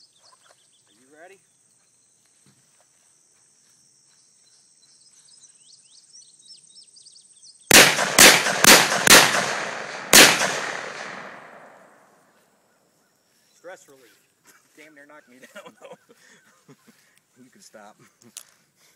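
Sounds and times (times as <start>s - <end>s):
insects buzzing and chirping: 0.0s - 7.8s, 11.0s - 18.8s
revolver shots echoing: 7.7s - 12.0s.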